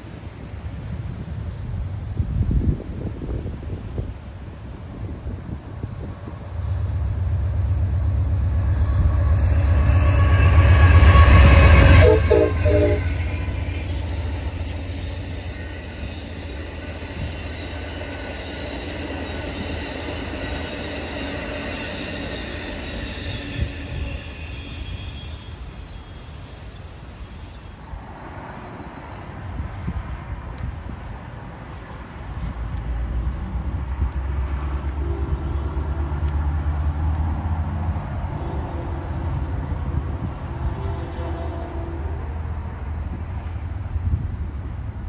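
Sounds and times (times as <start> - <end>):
diesel locomotive rumble: 0.5 - 45.0
train wheels ringing on rails: 5.4 - 29.2.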